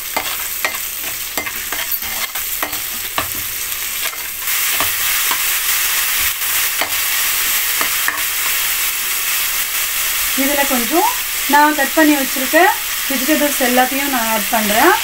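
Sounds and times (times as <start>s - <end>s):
onions sizzling in hot oil: 0.0s - 15.0s
ladle scraping a pan: 0.2s - 3.4s.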